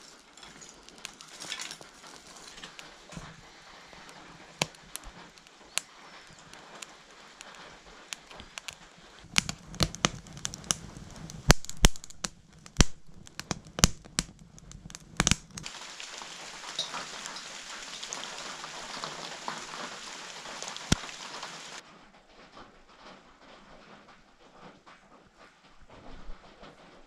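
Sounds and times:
low rumble of flames: 0.0s - 21.8s
steady fire hiss: 0.0s - 21.8s
wood fire crackling and popping: 0.0s - 21.8s.

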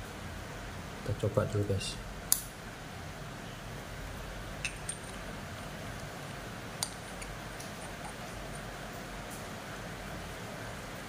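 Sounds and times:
steady background hiss: 0.0s - 11.0s
light metal clinks: 4.6s - 8.8s.

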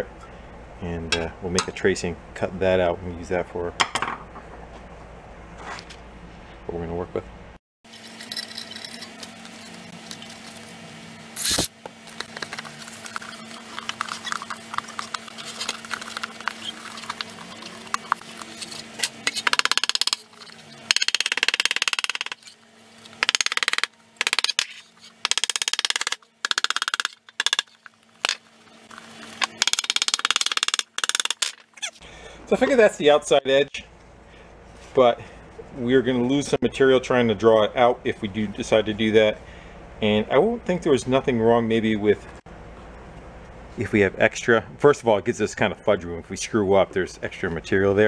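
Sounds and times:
steady low hum: 0.0s - 48.0s
paper crinkling and rubbing: 9.2s - 10.9s, 12.0s - 19.6s.

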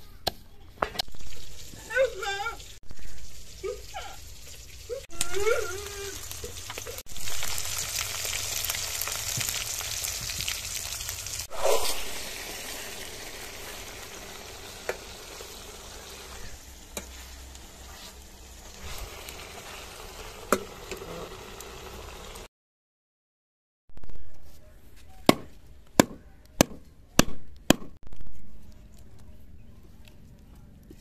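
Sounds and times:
curry sizzling in oil: 1.0s - 22.5s.

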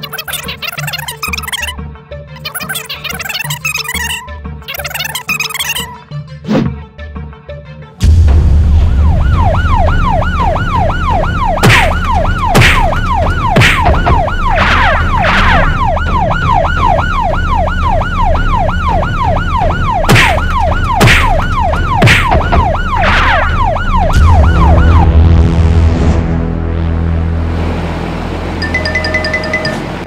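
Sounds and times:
cartoon police siren wailing: 0.0s - 1.8s, 2.4s - 5.9s, 8.9s - 25.2s
sharp hits: 11.6s - 15.9s, 20.0s - 26.7s.

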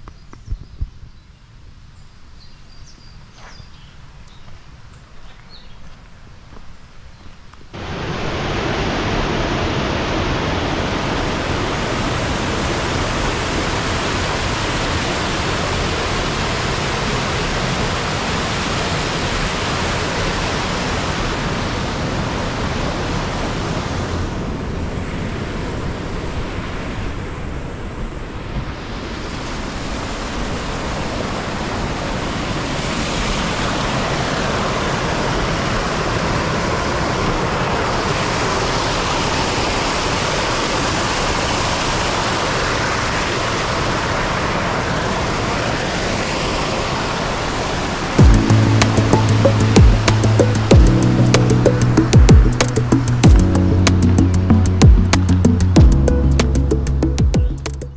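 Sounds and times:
rushing water: 7.8s - 57.7s.

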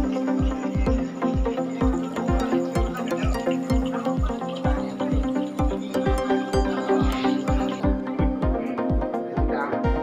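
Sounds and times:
steady kick-drum beat: 0.0s - 10.0s
sustained chords: 2.0s - 8.4s.

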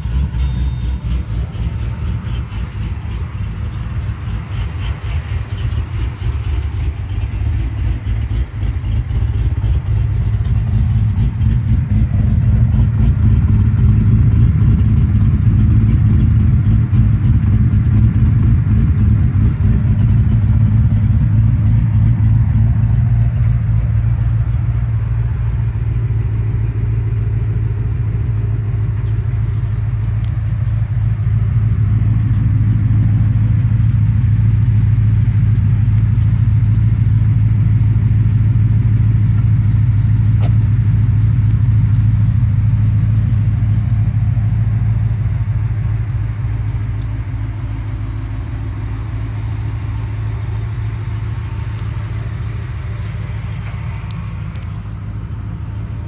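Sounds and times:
car engine idling: 0.0s - 56.0s.

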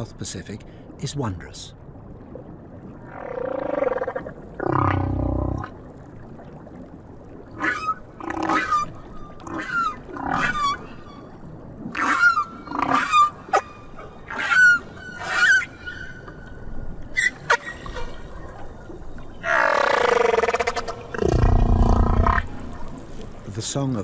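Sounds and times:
whale song calls: 3.0s - 6.0s, 7.3s - 23.2s.

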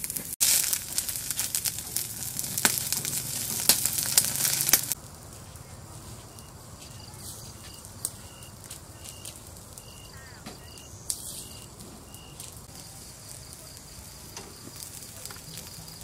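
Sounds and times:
squid sizzling on a grill: 0.0s - 16.0s.

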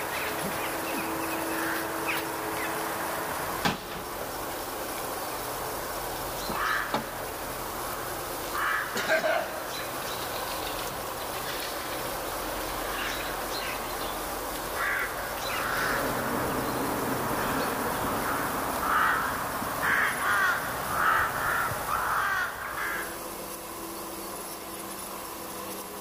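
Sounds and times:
crows cawing: 1.4s - 2.4s, 6.5s - 7.2s, 8.4s - 9.6s, 14.7s - 23.2s.

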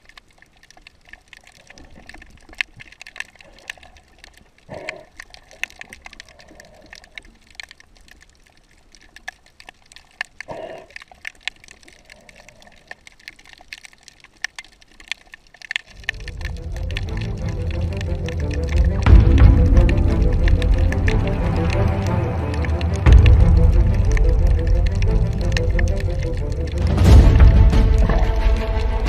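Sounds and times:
underwater crackle of clicks: 0.0s - 29.0s
water whooshes: 15.9s - 29.0s.

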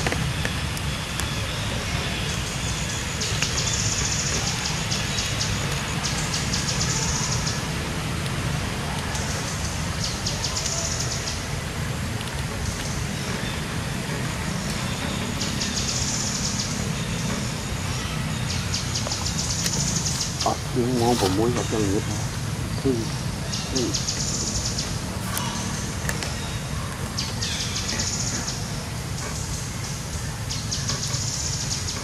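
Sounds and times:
steady low rumble: 0.0s - 32.0s
insects chirring: 9.2s - 32.0s.

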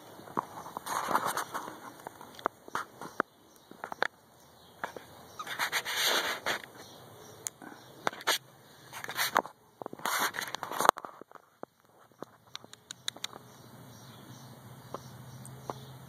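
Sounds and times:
rustling and scraping of hammock: 0.0s - 4.1s, 4.8s - 7.0s, 8.0s - 12.5s
parrot beak clicks: 12.5s - 13.4s.

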